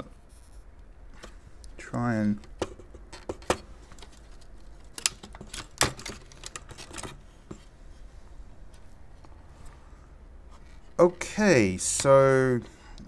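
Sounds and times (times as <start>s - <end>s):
plastic and metal parts clicking: 2.4s - 7.6s.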